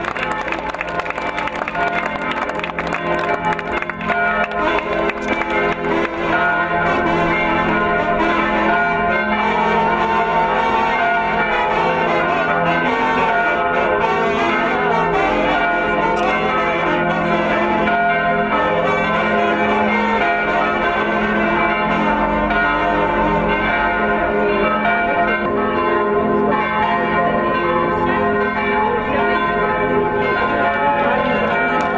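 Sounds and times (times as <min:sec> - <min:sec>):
church bells pealing: 0:00.0 - 0:31.9.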